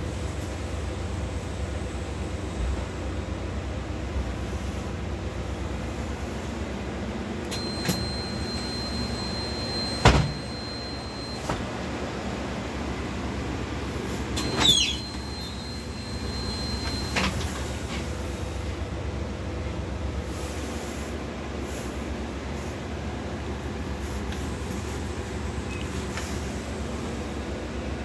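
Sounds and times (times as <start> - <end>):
bus engine idling hum: 0.0 - 28.0
pneumatic bus doors: 4.0 - 19.4, 20.0 - 28.0
high warning tone: 7.5 - 13.4, 14.4 - 18.1.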